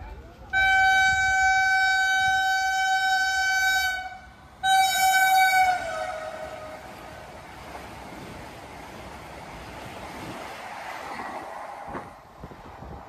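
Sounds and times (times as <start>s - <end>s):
train horn blast: 0.5s - 7.3s
train rushing past: 0.5s - 13.0s.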